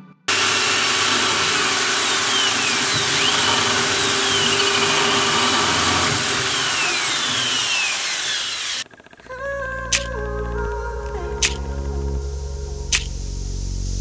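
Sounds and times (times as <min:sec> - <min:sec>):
electric drill boring into metal: 0:00.3 - 0:10.1.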